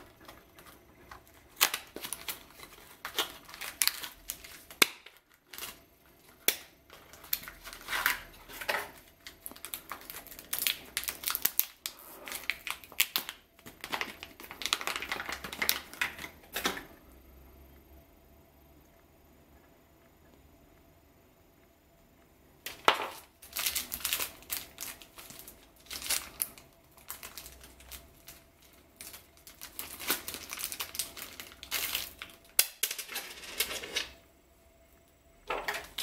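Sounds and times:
foil bag crinkling and tearing: 0:00.0 - 0:16.4, 0:22.7 - 0:34.2.

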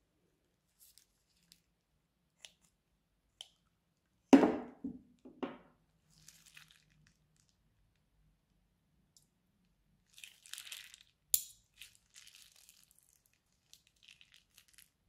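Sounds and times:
slime squelching: 0:06.1 - 0:07.5, 0:10.0 - 0:15.0
plastic bag crinkling: 0:06.1 - 0:07.6, 0:10.1 - 0:11.1, 0:11.8 - 0:15.0.

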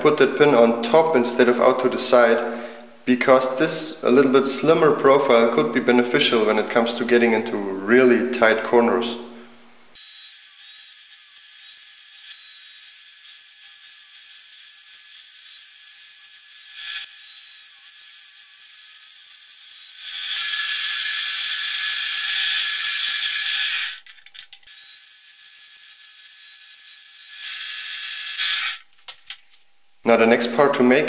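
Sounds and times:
angle grinder grinding steel: 0:10.0 - 0:24.1, 0:24.7 - 0:28.9.

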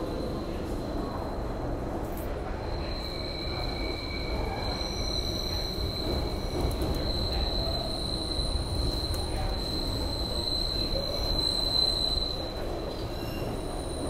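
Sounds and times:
subway car rumble: 0:00.0 - 0:14.0.

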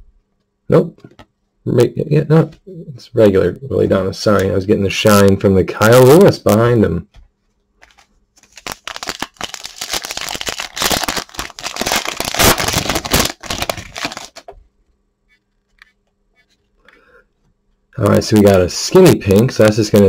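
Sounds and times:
foil wrapper crinkling and tearing: 0:07.8 - 0:14.5.

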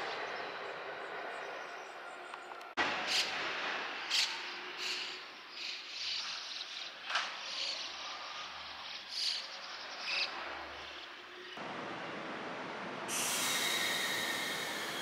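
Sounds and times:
electric train rushing past: 0:11.6 - 0:15.0.

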